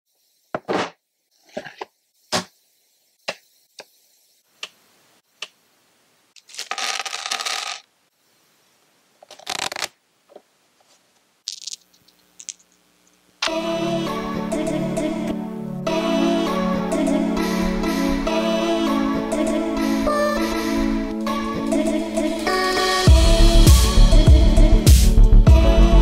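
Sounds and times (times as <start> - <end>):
game pieces clattering: 6.4 - 7.8, 11.5 - 12.7
game pieces clicking on table: 6.4 - 7.8, 11.5 - 12.7.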